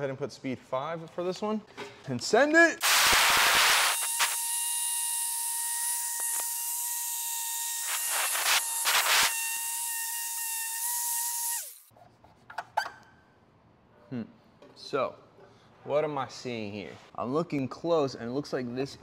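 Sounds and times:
motor winding down: 3.4s - 11.9s
polisher motor whining: 3.9s - 11.9s.

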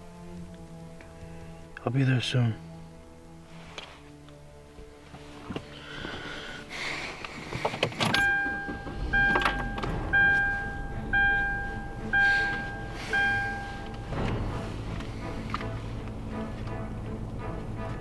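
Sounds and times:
car warning chime dinging: 8.0s - 14.4s
low rumble: 8.2s - 18.0s.

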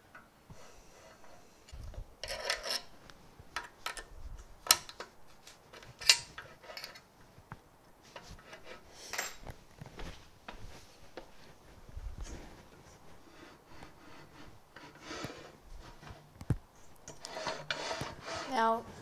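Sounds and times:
hex key and metal parts scraping: 1.0s - 3.0s, 5.7s - 7.1s.

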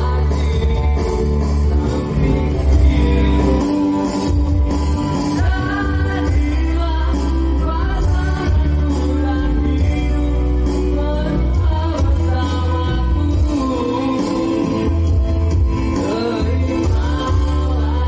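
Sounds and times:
instrumental accompaniment with bass: 0.0s - 18.0s
man singing into a microphone: 0.0s - 18.0s.

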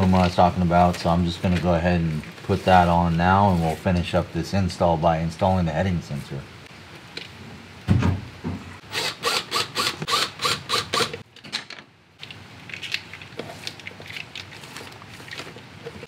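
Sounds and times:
thump: 7.9s - 8.6s.

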